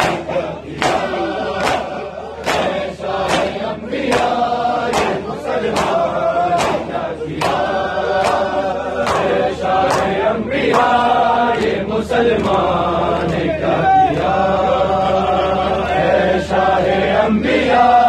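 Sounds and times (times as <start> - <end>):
hands slapping chests: 0.0 - 11.8
crowd of men chanting: 0.0 - 18.0.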